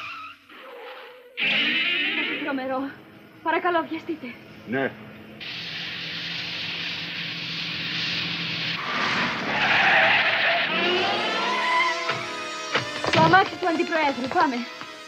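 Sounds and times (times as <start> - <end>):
tyres screeching: 0.0 - 2.8, 7.7 - 15.0
car engine humming: 1.2 - 15.0.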